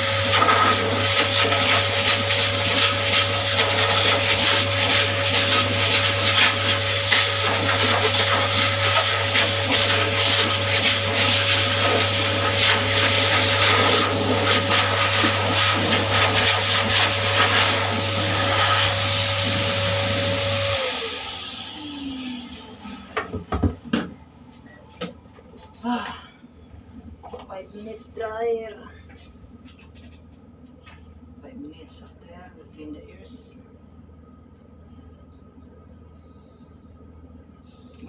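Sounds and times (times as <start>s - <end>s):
pet dryer blowing air: 0.0s - 24.1s.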